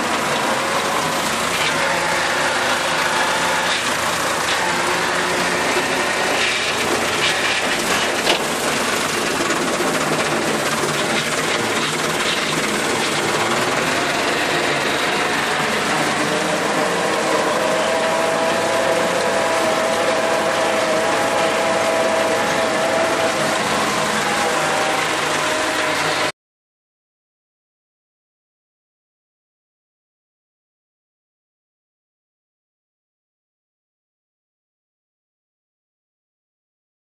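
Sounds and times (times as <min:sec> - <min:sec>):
tractor diesel engine running: 0:00.0 - 0:26.3
engine whine: 0:00.0 - 0:26.4.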